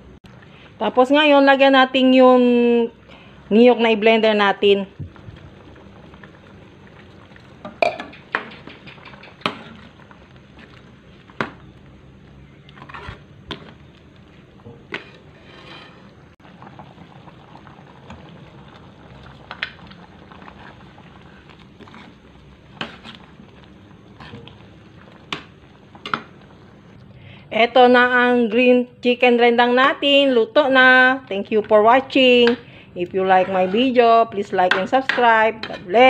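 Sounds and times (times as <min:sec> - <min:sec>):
sauce bubbling: 0:04.6 - 0:27.4
ladle scraping wok: 0:07.6 - 0:11.7, 0:12.3 - 0:16.4, 0:20.4 - 0:26.4, 0:32.5 - 0:36.0.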